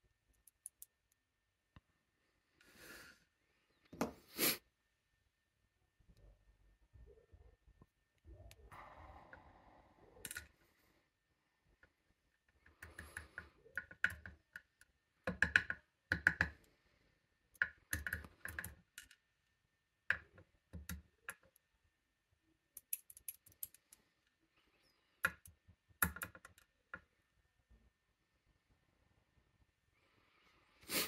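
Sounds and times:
metallic clicks and rattles of lock parts: 0:10.2 - 0:10.5, 0:22.8 - 0:24.0.

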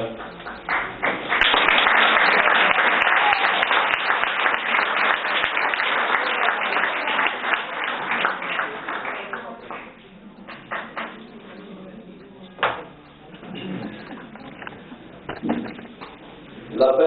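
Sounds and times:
audience applauding: 0:00.0 - 0:11.3.

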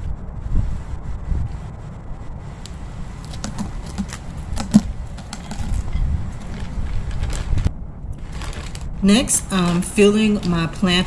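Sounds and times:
wind on microphone: 0:00.0 - 0:11.0
plastic bag crackling: 0:02.7 - 0:11.0.

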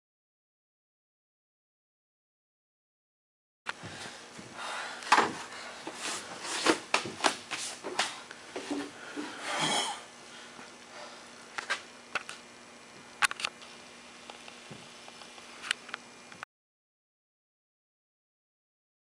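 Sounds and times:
faint hum: 0:03.7 - 0:16.4.

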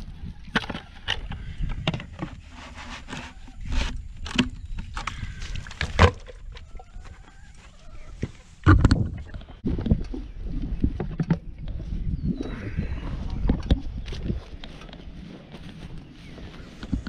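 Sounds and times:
wind rumble on microphone: 0:00.0 - 0:07.3, 0:07.9 - 0:17.0
plastic knocks and scrapes: 0:00.5 - 0:06.4, 0:08.2 - 0:09.5.

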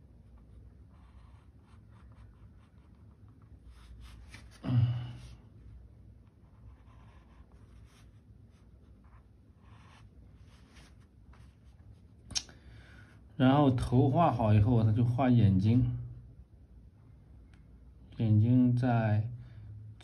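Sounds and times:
pencil scratching on paper: 0:00.2 - 0:04.6, 0:06.2 - 0:11.7.

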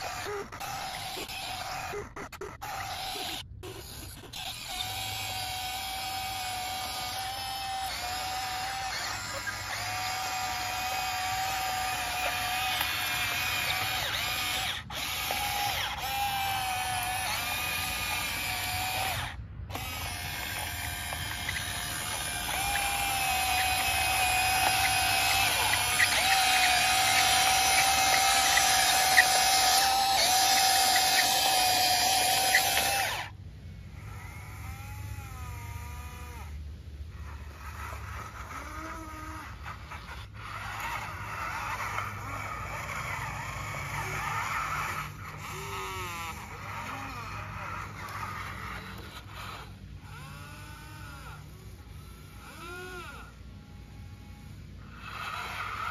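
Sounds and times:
electric motors whining: 0:00.0 - 0:55.9
small motor whine wavering: 0:00.0 - 0:55.9.

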